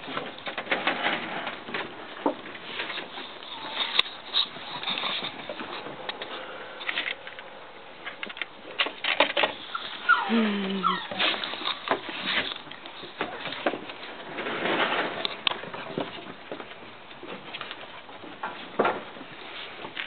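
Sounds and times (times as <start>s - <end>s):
puppy whining: 9.6s - 12.0s.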